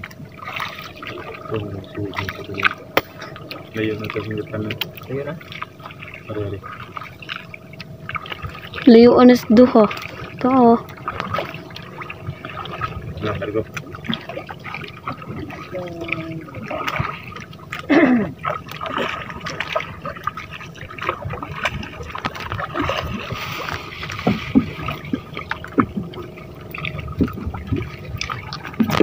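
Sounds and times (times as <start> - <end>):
water drips: 0.0 - 29.0
water gurgling and splashing: 0.0 - 29.0.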